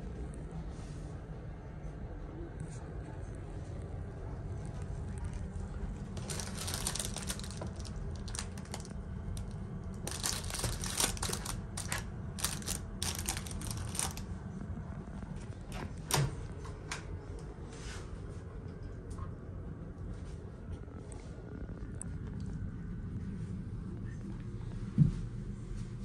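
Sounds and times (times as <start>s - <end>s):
objects clicking and rattling: 6.2s - 8.9s, 10.0s - 14.2s.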